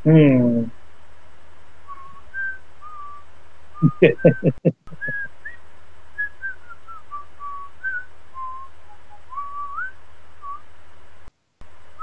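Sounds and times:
steady low hum: 0.0 - 12.0
person whistling: 1.9 - 3.2, 3.8 - 5.6, 6.2 - 10.6.

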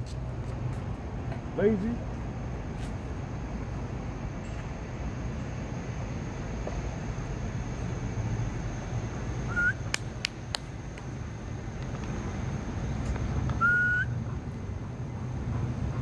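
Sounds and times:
low outdoor rumble: 0.0 - 16.0
short rising chirp: 9.5 - 9.8, 13.6 - 14.2.

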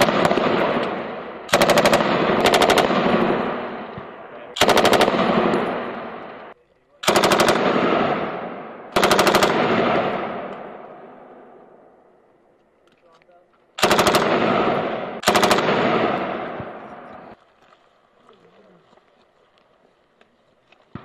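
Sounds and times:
machine gun firing bursts: 0.0 - 3.9, 4.5 - 10.5, 13.8 - 16.9
gunfire echo: 0.0 - 12.0, 13.8 - 17.4.

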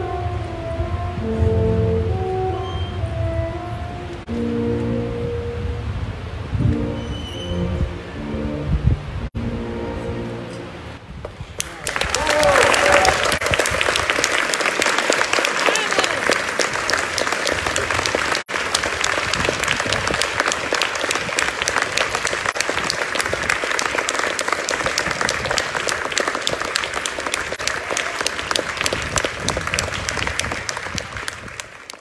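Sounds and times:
audience applauding: 11.6 - 32.0.

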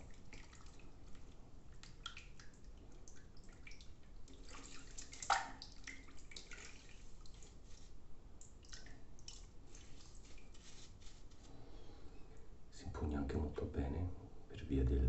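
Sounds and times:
water splashing and dripping: 0.0 - 11.2.

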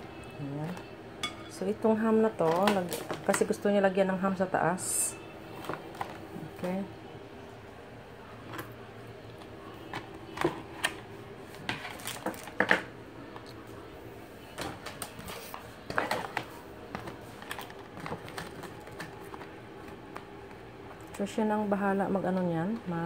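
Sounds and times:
plastic food packaging crinkling: 2.3 - 3.6, 9.4 - 13.6, 14.5 - 21.2.

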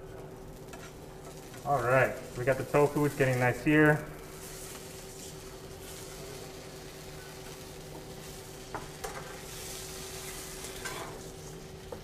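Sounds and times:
tofu sizzling in a pan: 4.2 - 12.0.

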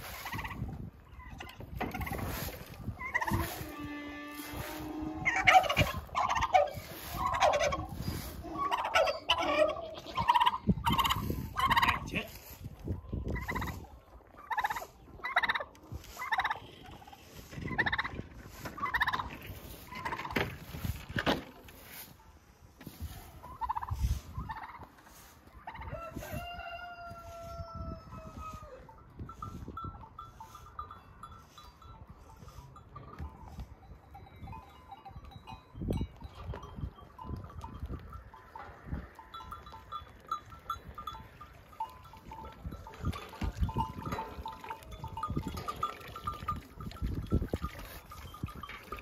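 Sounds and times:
turkey gobbling: 0.1 - 3.7, 4.7 - 12.1, 13.4 - 18.2, 18.8 - 20.4, 23.4 - 28.8.

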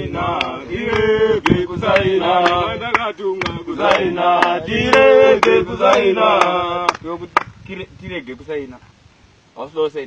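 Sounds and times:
men chanting together: 0.0 - 7.4.

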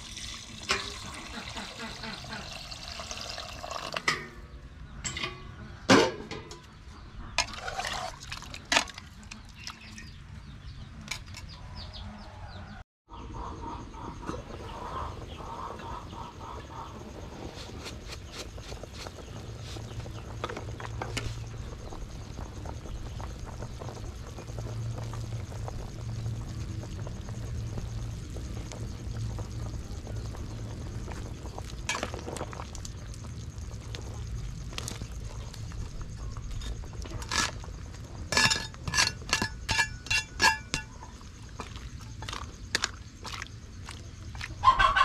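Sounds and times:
ladle scraping and clinking on pot: 7.4 - 9.4, 38.3 - 43.0
low rumble: 18.8 - 38.4.

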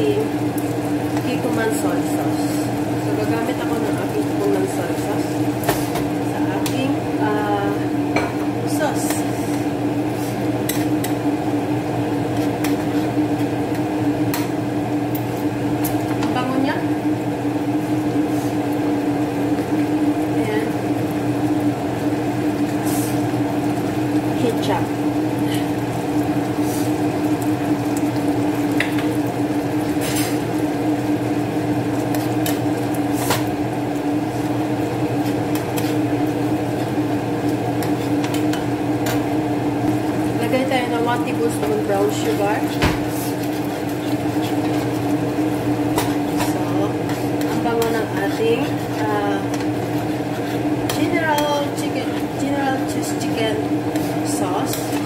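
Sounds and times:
kitchen appliance motor hum: 0.0 - 55.0
metal spoon stirring in frying pan: 9.0 - 11.2, 12.2 - 14.5, 27.8 - 30.7, 31.4 - 55.0.

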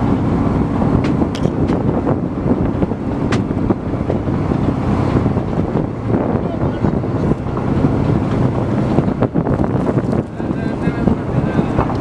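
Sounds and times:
boat engine running: 0.0 - 12.0
wind on microphone: 0.0 - 12.0
sharp knocks: 3.3 - 3.5.

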